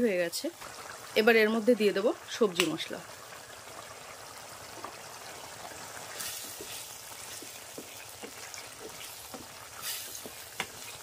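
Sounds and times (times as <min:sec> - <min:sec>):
thick gravy bubbling and sizzling: 0:00.0 - 0:11.0
wooden spatula stirring: 0:06.0 - 0:11.0.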